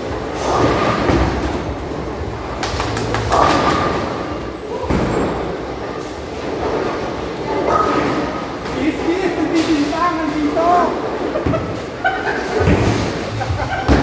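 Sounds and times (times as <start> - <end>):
bowling ball rolling: 0.0 - 8.6.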